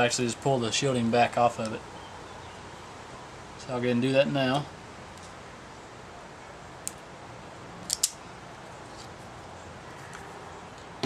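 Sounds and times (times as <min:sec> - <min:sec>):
wire stripper clicks: 0:07.9 - 0:08.2.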